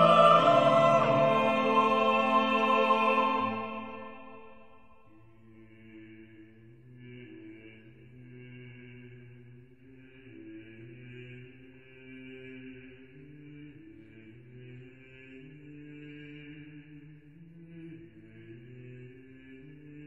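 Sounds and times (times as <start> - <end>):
chant-like drone music: 0.0 - 4.8.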